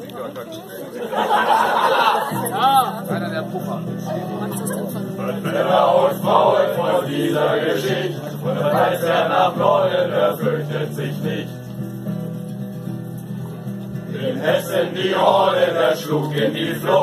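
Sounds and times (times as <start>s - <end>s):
crowd singing in chorus: 1.0s - 2.9s, 4.4s - 12.1s, 13.9s - 17.0s.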